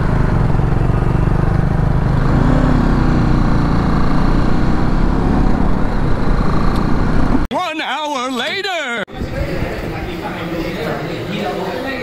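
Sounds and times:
motorcycle engine running: 0.0s - 7.5s
steady rising tone: 0.0s - 7.5s
wind rush on microphone: 9.1s - 10.2s.

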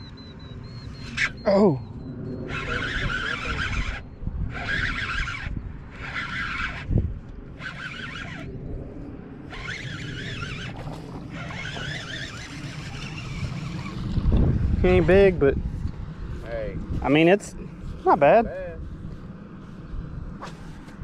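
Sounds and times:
wind rumble on microphone: 0.0s - 21.0s
fishing reel whirring: 2.4s - 8.7s, 9.4s - 15.4s.

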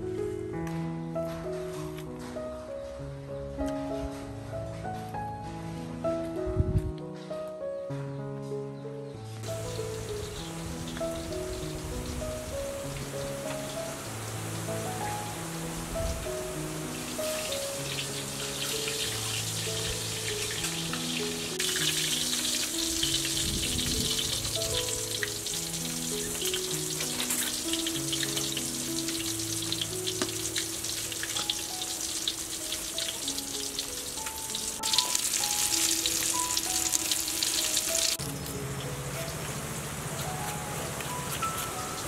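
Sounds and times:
soft background music: 0.0s - 42.0s
fish sizzling in hot oil: 9.4s - 42.0s.

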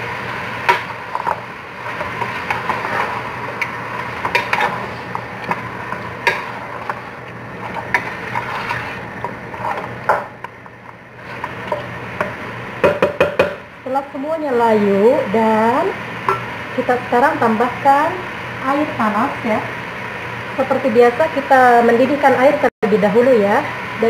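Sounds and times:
frying hiss: 0.0s - 24.0s
spoon knocking and scraping pot: 0.7s - 7.0s, 7.6s - 13.6s.

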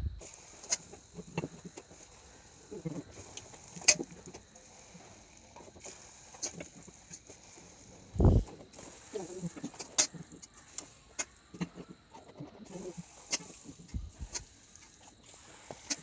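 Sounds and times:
oil sizzling and crackling: 0.2s - 11.8s, 12.6s - 16.0s.

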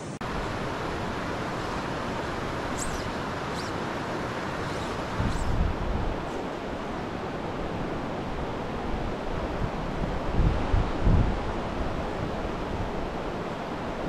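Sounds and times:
wind buffeting microphone: 4.4s - 6.7s, 8.8s - 13.3s.

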